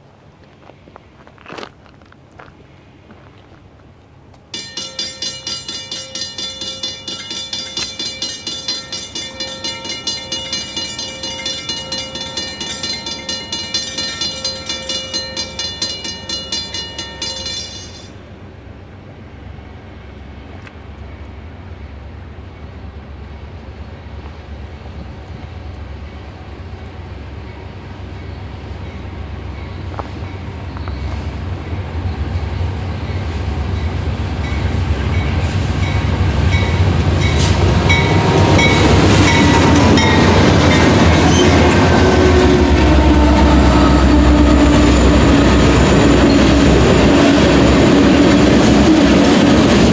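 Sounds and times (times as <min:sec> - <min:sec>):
freight train rumble: 0:00.0 - 0:49.9
railroad warning bell clanging: 0:04.5 - 0:18.4, 0:24.8 - 0:49.9.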